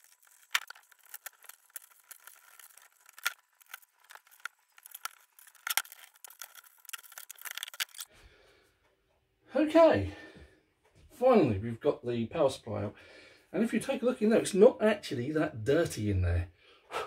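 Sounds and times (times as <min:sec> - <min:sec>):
screwdriver clicks and rattles: 0:00.0 - 0:08.1.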